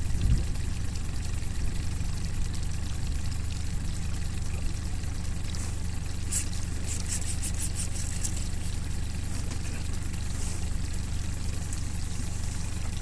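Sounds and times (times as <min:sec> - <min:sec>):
boat motor idling: 0:00.0 - 0:13.0
fishing reel clicking rapidly: 0:06.2 - 0:09.1.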